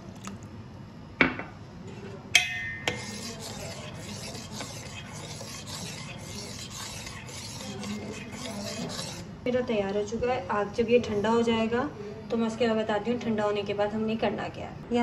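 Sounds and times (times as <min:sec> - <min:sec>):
metal spoon scraping a metal pan: 0:02.8 - 0:09.3.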